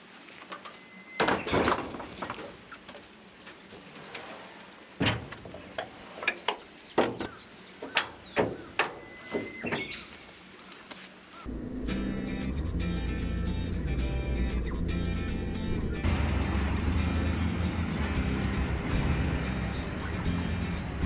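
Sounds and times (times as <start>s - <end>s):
high insect buzz: 0.0s - 21.0s
tailgate clicking and latching: 5.0s - 10.0s.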